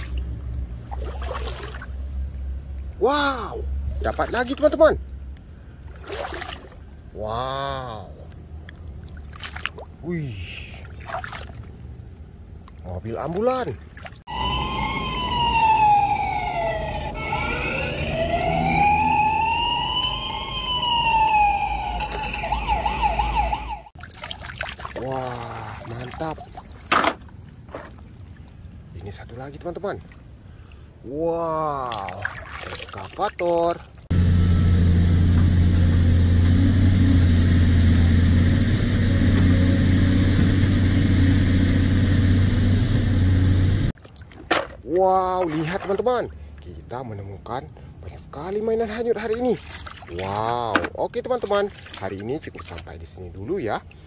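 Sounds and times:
excavator diesel engine humming: 0:14.3 - 0:23.9, 0:34.1 - 0:43.9
toy electronic siren wailing: 0:14.3 - 0:23.9.

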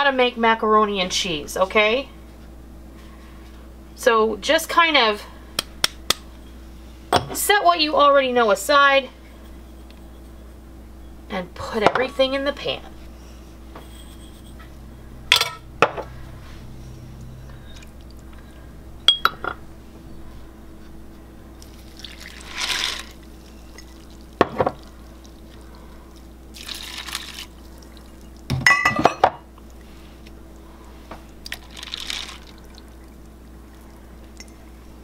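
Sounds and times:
glass jars clinking: 0:19.1 - 0:19.6, 0:28.5 - 0:29.4
liquid pouring into a pan: 0:21.8 - 0:25.6, 0:26.5 - 0:28.4.

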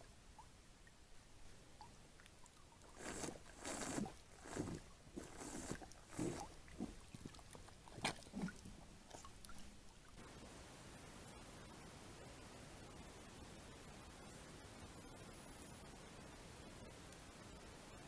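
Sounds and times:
deer slurping water: 0:02.9 - 0:09.7.

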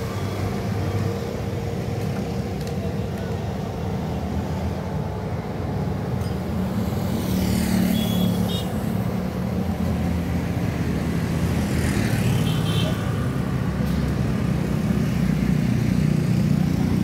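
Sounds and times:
road traffic noise: 0:00.0 - 0:17.0
motorcycle passing: 0:06.8 - 0:09.0.

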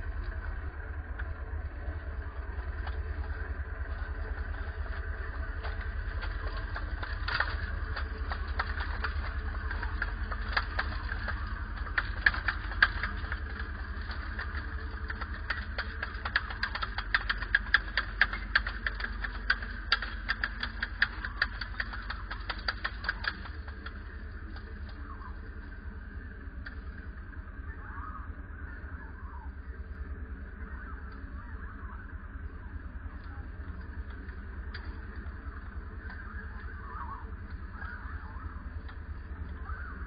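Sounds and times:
tracks clicking and rattling: 0:00.0 - 0:27.0
low rumble: 0:00.0 - 0:40.0
model tank motor whine: 0:00.0 - 0:40.0.

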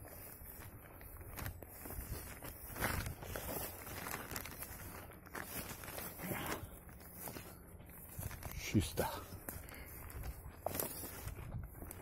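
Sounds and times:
footsteps through undergrowth: 0:00.0 - 0:12.0.

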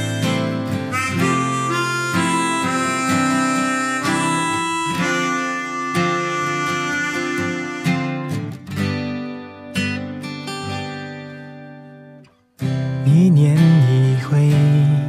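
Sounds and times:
harmonica melody: 0:00.0 - 0:12.0
acoustic guitar: 0:00.0 - 0:15.0.

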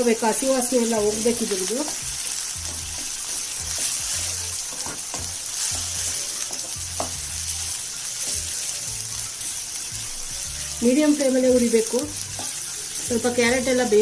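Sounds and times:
vegetables sizzling in oil: 0:00.0 - 0:14.0
spatula stirring and scraping: 0:01.3 - 0:14.0
spatula knocking against pan: 0:04.7 - 0:07.2.

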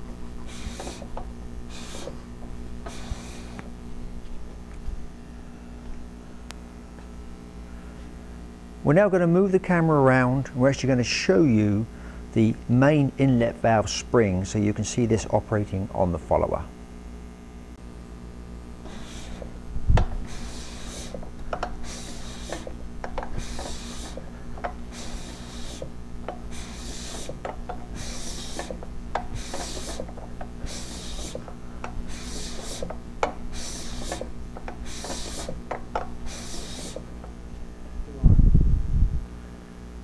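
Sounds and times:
valve gear clicking and clacking: 0:00.2 - 0:03.8, 0:18.8 - 0:37.6.

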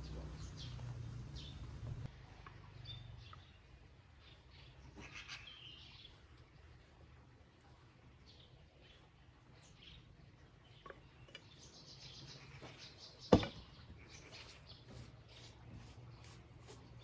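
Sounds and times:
faint bird chirps: 0:02.7 - 0:07.0, 0:07.6 - 0:16.8.

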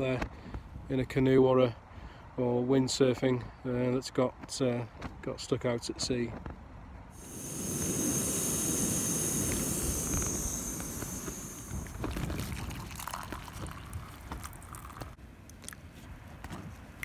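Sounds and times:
camping stove hissing: 0:07.2 - 0:13.8
water pouring into plastic mug: 0:11.6 - 0:15.2.

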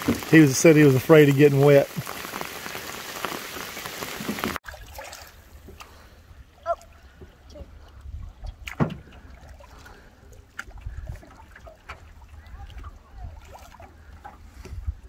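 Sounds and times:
rain pattering on water: 0:00.0 - 0:04.6
paddle strokes and drips: 0:00.0 - 0:15.0.

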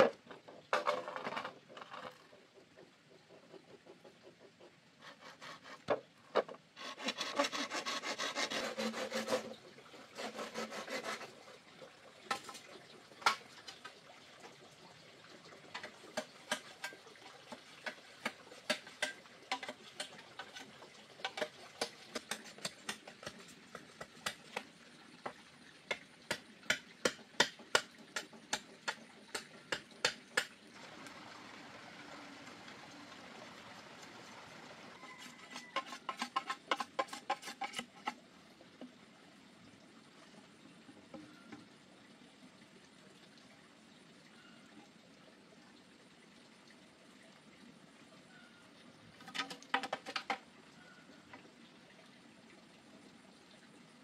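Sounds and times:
hand tool rasping on wood: 0:05.0 - 0:05.9, 0:06.8 - 0:11.4.

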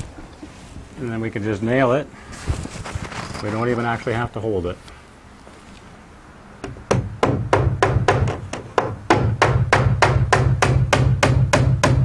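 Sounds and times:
hammer driving nail into wood: 0:06.6 - 0:12.0.

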